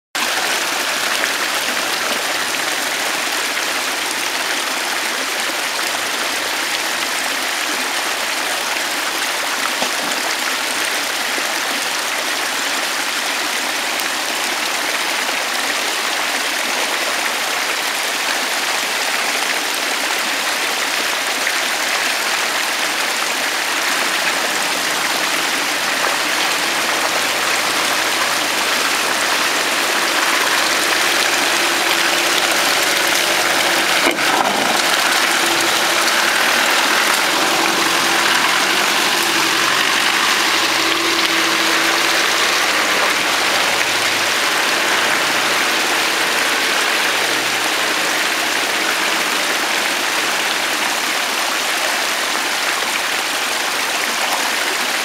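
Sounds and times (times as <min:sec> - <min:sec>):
flowing water rushing: 0:00.0 - 0:55.0
diesel engine humming: 0:23.2 - 0:52.1.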